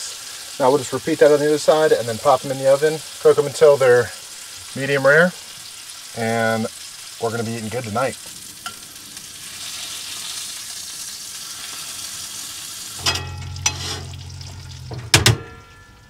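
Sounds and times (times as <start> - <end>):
steaks sizzling in a skillet: 0.0 - 15.1
metal clanks: 13.0 - 16.0
oven hum: 13.0 - 16.0.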